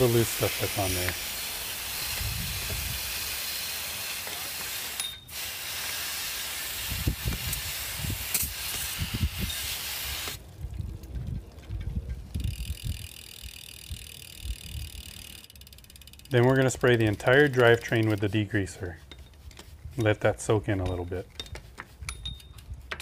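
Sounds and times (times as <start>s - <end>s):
hose water spraying: 0.0s - 10.4s.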